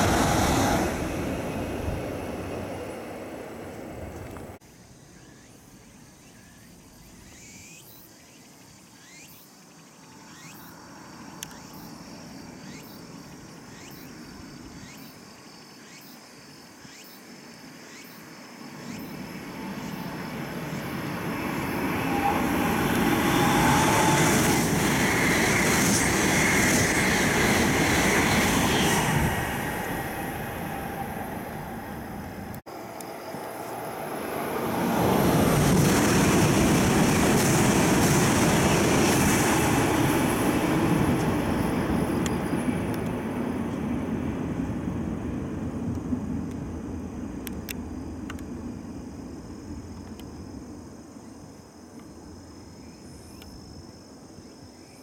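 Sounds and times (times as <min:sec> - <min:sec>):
high-speed train passing: 0:00.0 - 0:04.6, 0:18.6 - 0:51.1.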